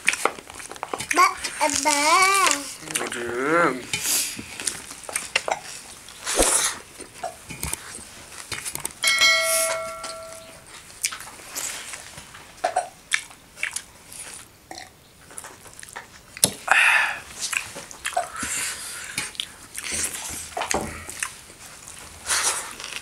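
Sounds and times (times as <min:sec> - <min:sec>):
chewing: 0:00.0 - 0:09.0, 0:10.6 - 0:16.7, 0:17.3 - 0:23.0
child's high voice: 0:01.1 - 0:03.8
bell-like ding: 0:09.0 - 0:10.6.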